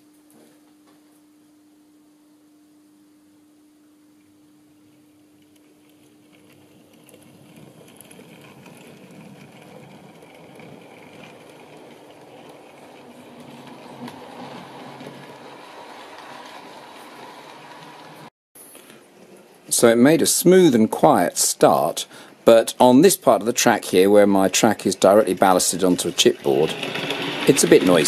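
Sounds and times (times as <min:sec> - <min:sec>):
model train wheels rumbling: 0:05.8 - 0:18.3, 0:19.2 - 0:28.0.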